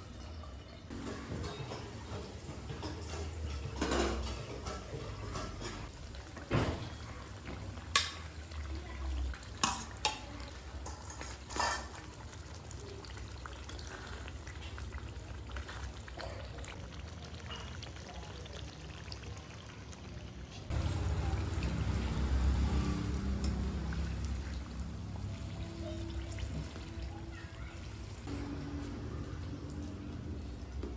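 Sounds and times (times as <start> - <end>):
stirring chicken in a pan: 1.1 - 19.8
curry bubbling in a pan: 1.3 - 30.9.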